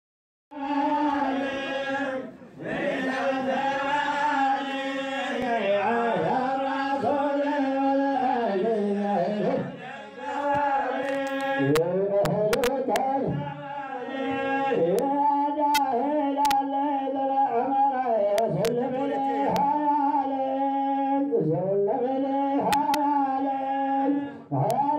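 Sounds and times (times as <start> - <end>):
chanted singing: 0.5 - 12.0, 12.8 - 15.1
sharp clicks: 12.6 - 13.0, 22.7 - 23.0.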